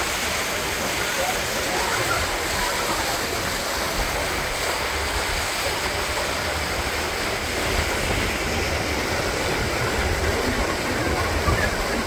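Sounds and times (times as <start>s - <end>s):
water rushing along boat hull: 0.0s - 12.0s.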